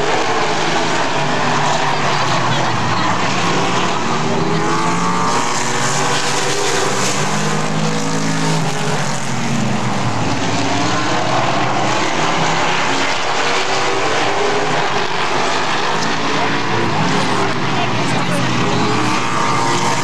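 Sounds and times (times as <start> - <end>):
race car engines passing by: 0.0 - 20.0.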